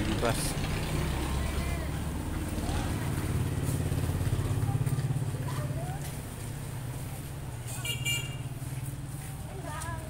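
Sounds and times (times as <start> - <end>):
vehicle engine passing by: 0.0 - 7.8.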